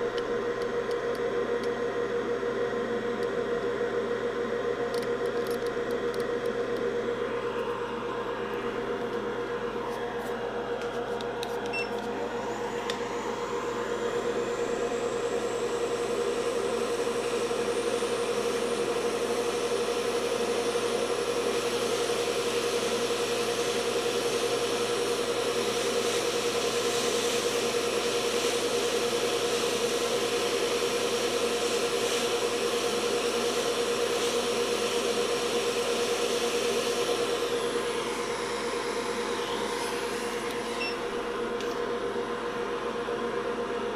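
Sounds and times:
electronics hum: 0.0s - 21.6s, 37.1s - 43.9s
whooshing fan: 0.0s - 43.9s.

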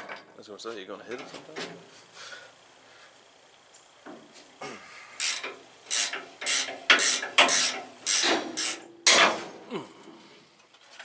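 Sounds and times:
ratcheting wrench clicks: 5.2s - 8.9s.

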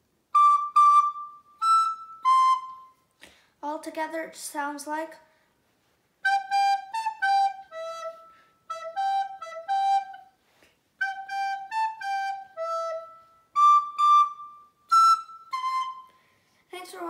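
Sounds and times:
soprano recorder tune: 0.3s - 3.1s, 6.2s - 10.4s, 11.0s - 16.3s.

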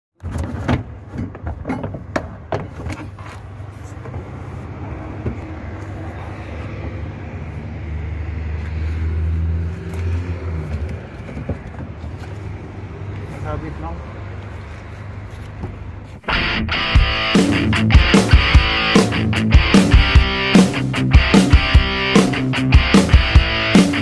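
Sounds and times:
vehicle engine running: 16.3s - 24.0s.

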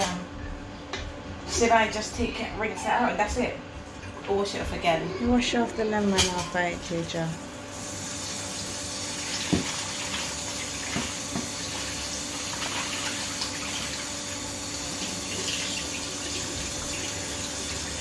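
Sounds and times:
tap running into a metal bowl: 9.4s - 11.9s.

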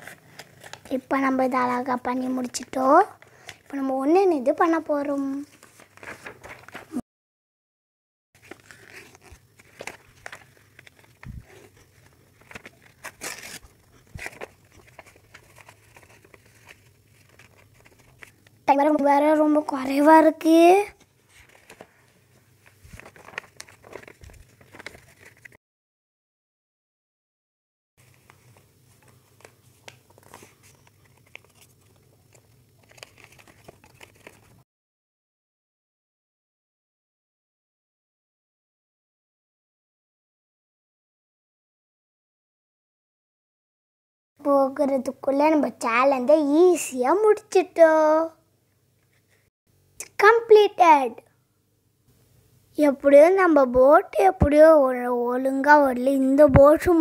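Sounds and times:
paper crackling as creased: 0.0s - 1.0s, 5.5s - 7.0s, 8.4s - 18.6s, 21.2s - 25.6s, 28.0s - 34.6s
paper rustling and crinkling: 0.0s - 1.6s, 5.0s - 7.0s, 8.4s - 18.6s, 21.0s - 25.6s, 28.0s - 34.6s.

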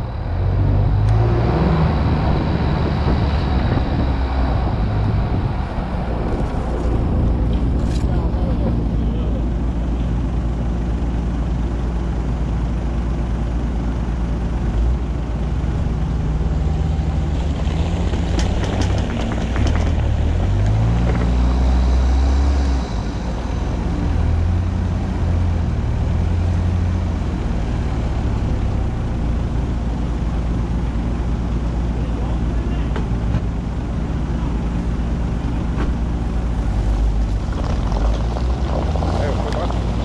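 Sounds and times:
engine pulling under load: 15.7s - 31.1s, 31.9s - 40.0s
sharp knocks and cracks: 17.5s - 21.4s.

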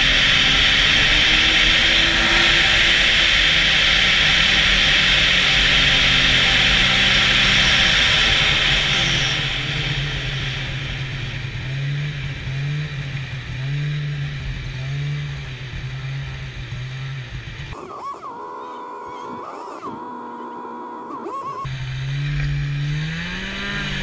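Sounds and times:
snowmobile engine revving: 0.0s - 24.0s.

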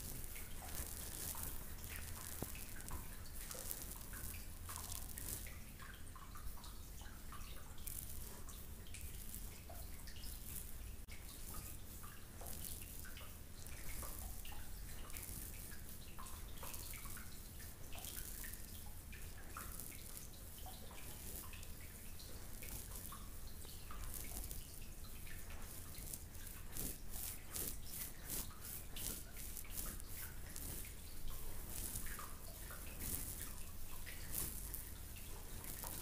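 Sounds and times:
fingers rustling through hair: 0.0s - 36.0s
water drips plinking: 0.0s - 36.0s.

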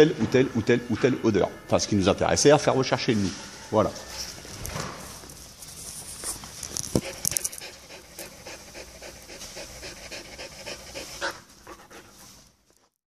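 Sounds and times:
dog panting: 7.0s - 13.0s.

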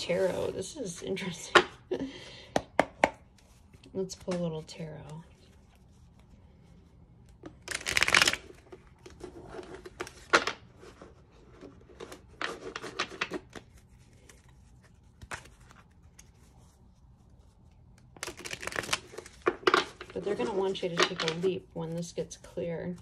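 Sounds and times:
cards being shuffled: 7.2s - 23.0s.

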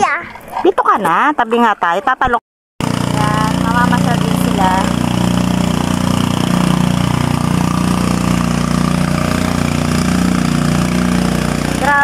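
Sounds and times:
engine running: 2.8s - 12.0s.

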